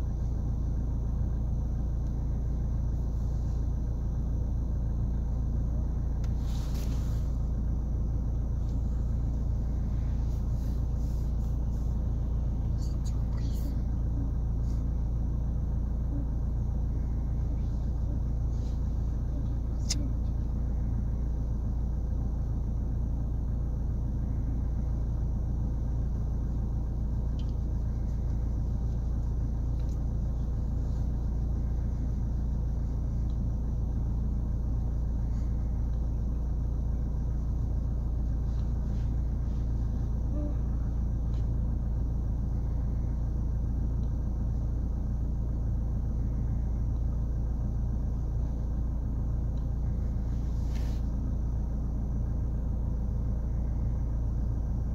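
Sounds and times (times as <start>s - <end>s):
car engine idling: 0.0s - 54.9s
climate control running: 0.0s - 54.9s
faint clicks: 27.3s - 28.4s.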